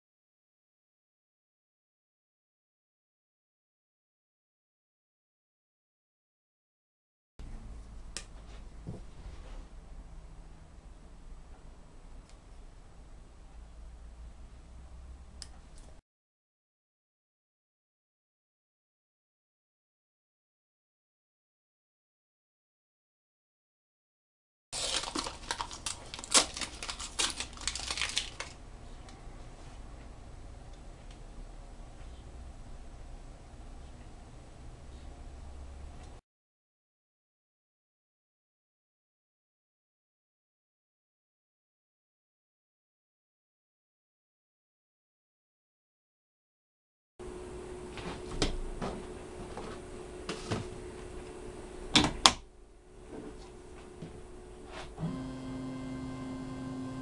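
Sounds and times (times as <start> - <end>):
paper masking peeled off plastic: 24.8 - 28.6
faint steady hum: 47.2 - 57.0.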